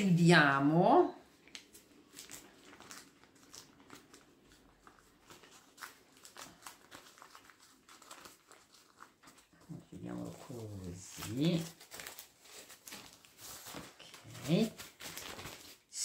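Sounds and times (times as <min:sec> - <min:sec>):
baking paper crinkling: 0:01.2 - 0:16.0.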